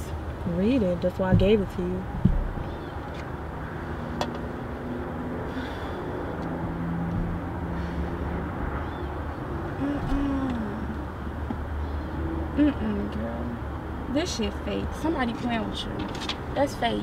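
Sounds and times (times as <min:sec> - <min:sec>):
car cabin hum: 0:00.4 - 0:03.2.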